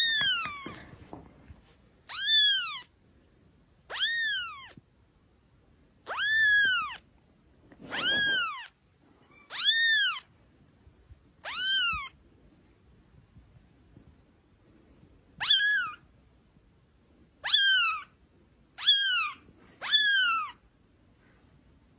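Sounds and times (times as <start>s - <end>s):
kitten meowing: 0.0s - 0.8s, 2.1s - 2.9s, 3.9s - 4.8s, 6.0s - 7.0s, 7.8s - 10.3s, 11.4s - 12.2s, 15.4s - 16.0s, 17.4s - 18.1s, 18.8s - 20.6s.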